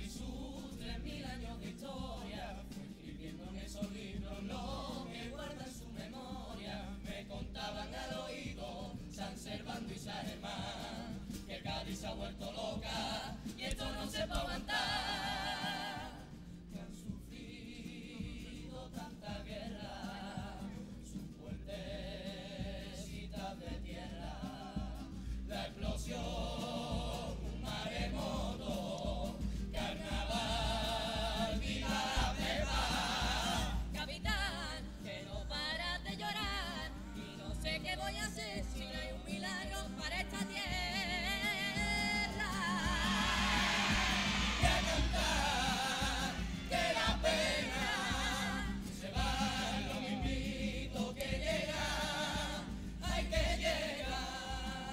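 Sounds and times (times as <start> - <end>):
choir singing in parts: 0.0 - 37.7, 38.8 - 54.9
musical accompaniment: 41.3 - 50.2.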